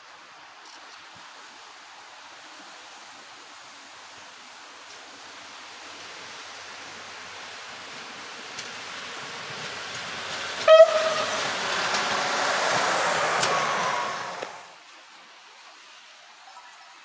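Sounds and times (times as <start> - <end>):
rail vehicle passing: 2.9 - 15.0
short horn blast: 10.6 - 12.2.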